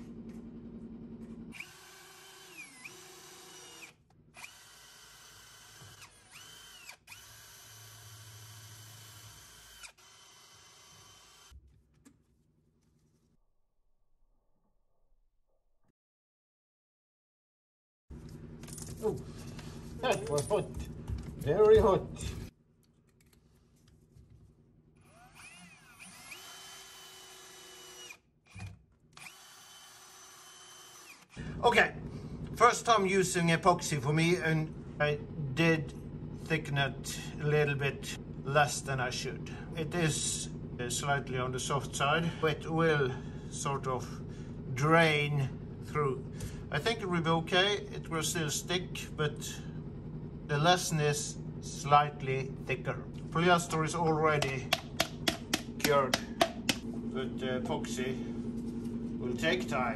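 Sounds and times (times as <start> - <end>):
cordless drill drilling into wood: 1.5 - 11.5, 25.0 - 31.4.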